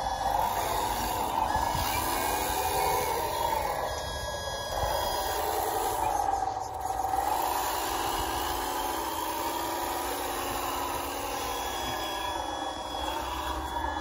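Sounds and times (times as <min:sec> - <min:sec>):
electric motors whining: 0:00.0 - 0:14.0.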